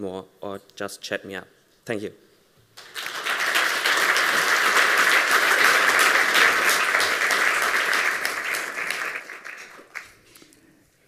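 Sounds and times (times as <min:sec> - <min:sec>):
audience applauding: 0:02.8 - 0:10.4.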